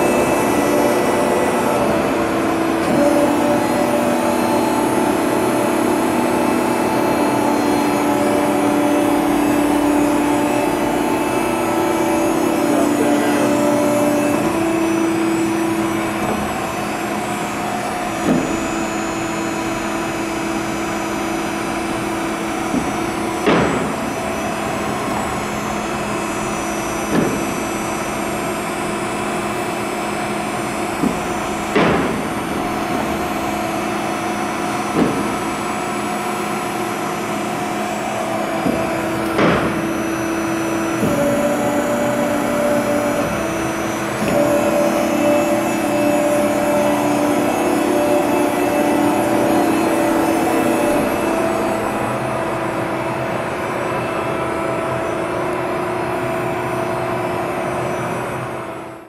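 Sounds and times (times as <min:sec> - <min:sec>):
machine hum: 0:00.0 - 0:59.0.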